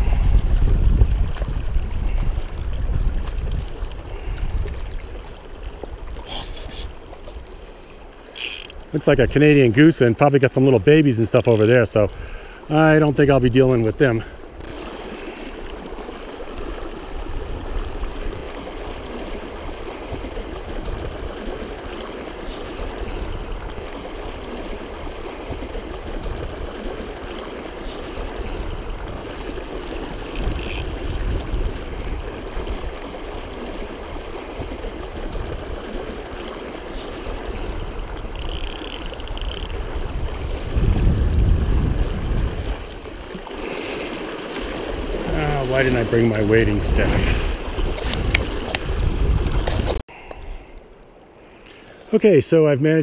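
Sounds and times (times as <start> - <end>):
wind on microphone: 0.0 - 7.0, 19.4 - 21.9, 22.5 - 43.3, 44.9 - 50.0
river current rushing and gurgling: 0.0 - 53.0
water surging around wading person: 0.0 - 53.0.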